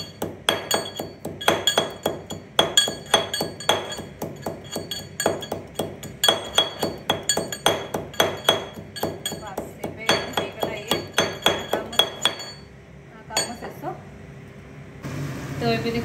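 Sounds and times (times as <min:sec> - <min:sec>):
steel pestle pounding in mortar: 0:00.0 - 0:12.6.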